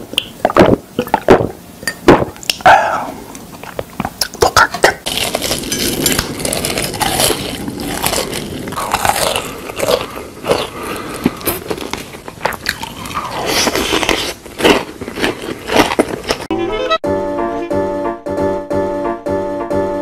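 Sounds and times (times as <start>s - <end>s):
person eating crunching: 2.1s - 16.5s.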